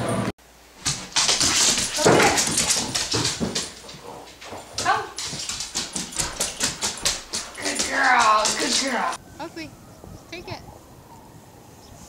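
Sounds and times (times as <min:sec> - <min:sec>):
dog claws clicking on floor: 0:00.8 - 0:09.2.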